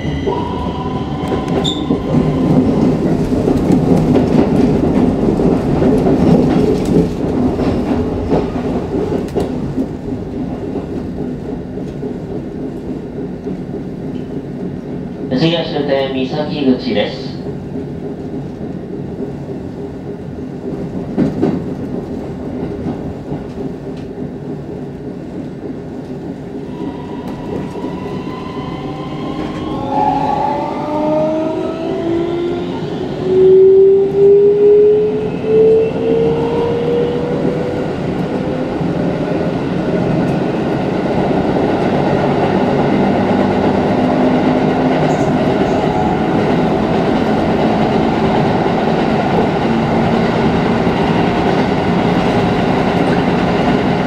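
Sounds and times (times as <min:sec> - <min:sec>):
train wheels rolling on rails: 0:00.0 - 0:15.4, 0:17.4 - 0:54.0
wheels clickety-clack: 0:01.2 - 0:15.2, 0:17.6 - 0:26.6.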